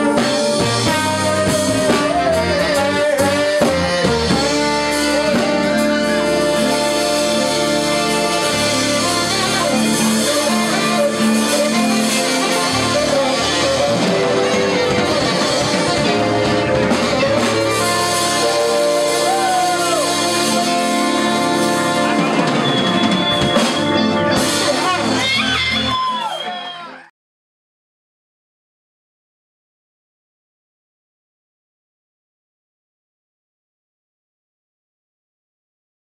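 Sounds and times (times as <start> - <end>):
trombone: 0.0 - 25.9
electric guitars: 0.0 - 26.4
saxophone: 0.0 - 26.4
drums: 0.0 - 27.1.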